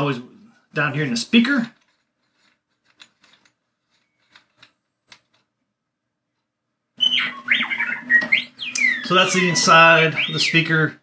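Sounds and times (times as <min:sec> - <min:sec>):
faint clicks and taps of handling: 0:01.7 - 0:05.7
bird squawking: 0:07.0 - 0:10.8.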